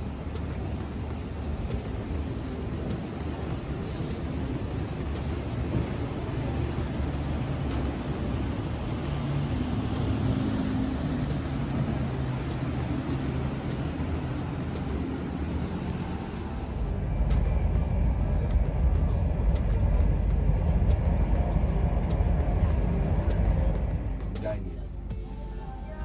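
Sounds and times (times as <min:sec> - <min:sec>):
outdoor hiss: 0:00.0 - 0:17.8
low engine drone: 0:00.0 - 0:26.0.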